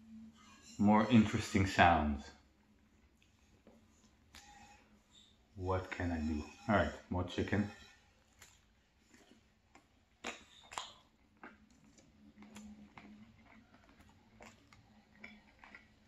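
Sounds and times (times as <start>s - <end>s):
quiet chewing: 8.2s - 16.0s
wet mouth clicks: 9.2s - 15.9s.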